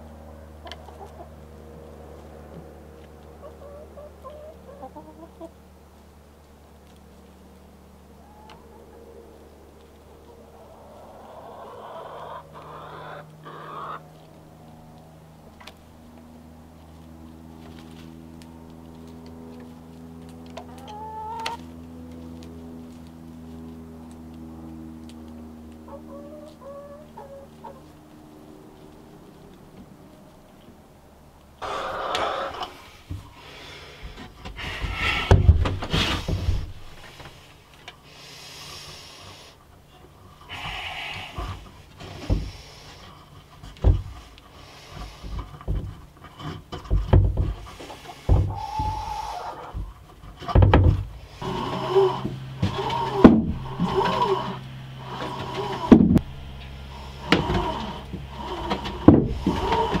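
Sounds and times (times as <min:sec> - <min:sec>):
wooden door scraping: 0:49.8 - 0:56.4, 0:57.1 - 1:00.0.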